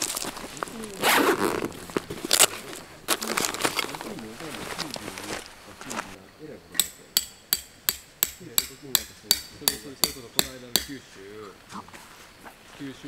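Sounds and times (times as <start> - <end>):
hammer striking tent stake: 6.8 - 11.0.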